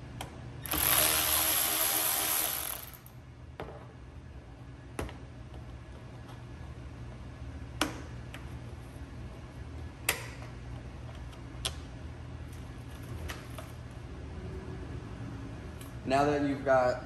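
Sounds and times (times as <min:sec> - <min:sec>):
electric ratchet running: 0:00.6 - 0:03.1.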